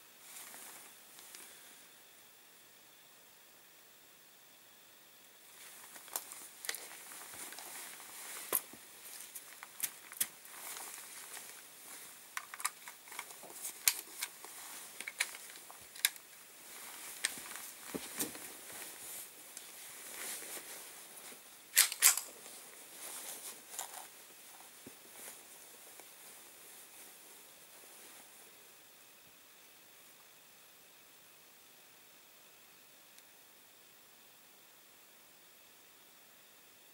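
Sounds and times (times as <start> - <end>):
rifle and clothing handling: 5.6 - 27.2
sharp rifle clicks: 21.8 - 22.3.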